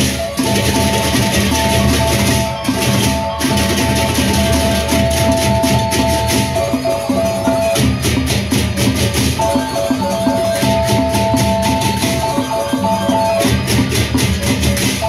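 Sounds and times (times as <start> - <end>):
held high melodic notes: 0.0 - 15.0
large barrel drums beating: 0.0 - 15.0
rapid cymbal clashing: 0.0 - 15.0.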